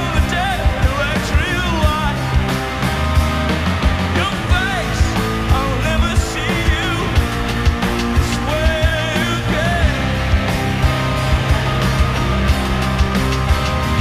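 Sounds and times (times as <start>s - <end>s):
bass guitar: 0.0s - 14.0s
distorted electric guitars: 0.0s - 14.0s
drums driving beat: 0.0s - 14.0s.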